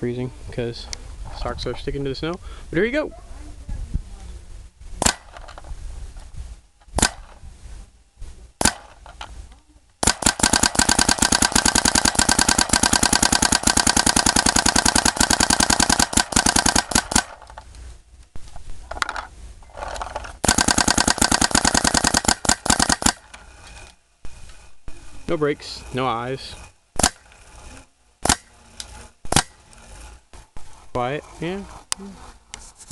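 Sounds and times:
paintball marker firing: 5.0 - 5.4, 7.0 - 7.4, 8.6 - 9.0, 10.0 - 17.5, 20.4 - 23.3, 27.0 - 27.3, 28.2 - 28.5, 29.2 - 29.6.

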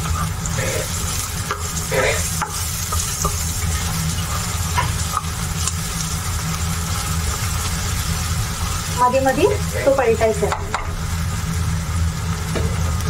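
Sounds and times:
spoon scraping a pan: 0.0 - 5.7
onions sizzling in a pan: 0.0 - 13.0.

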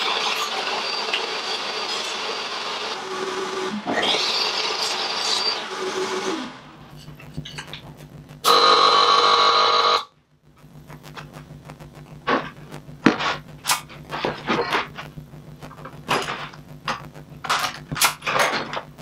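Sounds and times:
power tool running: 0.0 - 6.8, 8.5 - 10.1.

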